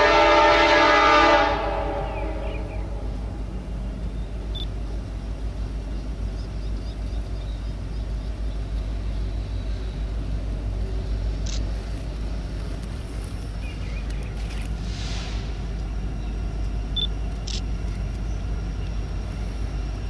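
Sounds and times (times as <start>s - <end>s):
distant freight train rumble: 0.0s - 20.0s.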